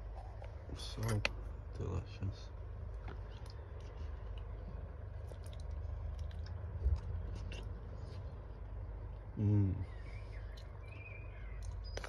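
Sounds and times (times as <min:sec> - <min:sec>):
person chewing food: 0:03.2 - 0:09.3.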